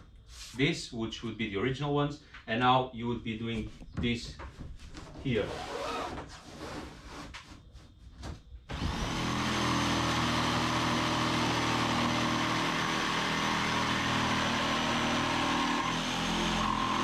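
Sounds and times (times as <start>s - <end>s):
power tool motor whining: 8.7s - 17.0s.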